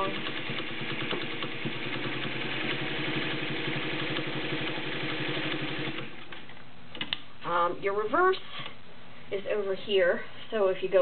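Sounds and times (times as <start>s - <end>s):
sewing machine stitching: 0.0s - 6.4s.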